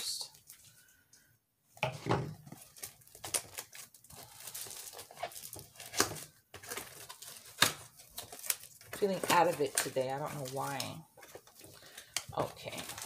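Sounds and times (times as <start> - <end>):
cardboard rustling: 2.3 - 11.8.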